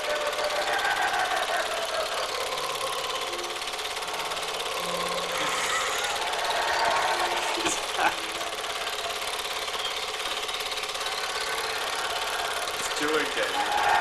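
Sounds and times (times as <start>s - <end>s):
film projector clattering: 0.0s - 14.0s.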